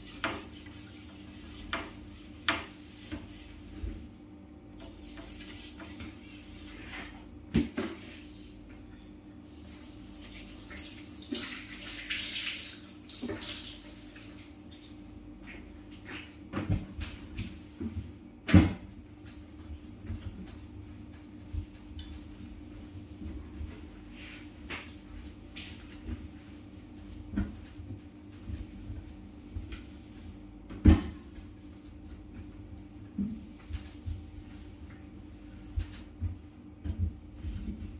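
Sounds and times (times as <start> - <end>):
steady low hum: 14.2 - 37.9.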